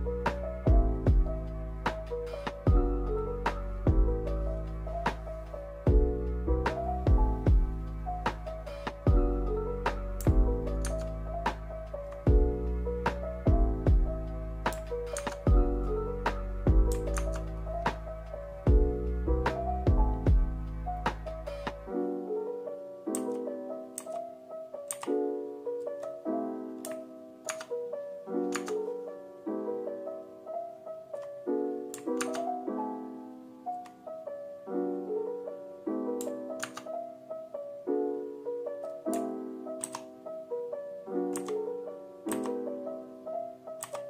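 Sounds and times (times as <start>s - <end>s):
mellow piano chords: 0.0s - 44.0s.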